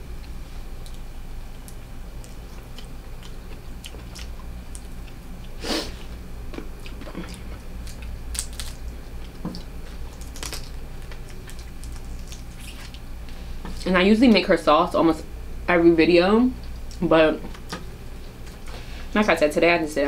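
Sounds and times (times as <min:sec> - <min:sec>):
person chewing and sucking: 0:01.6 - 0:13.4
crab shell cracking: 0:06.6 - 0:13.1.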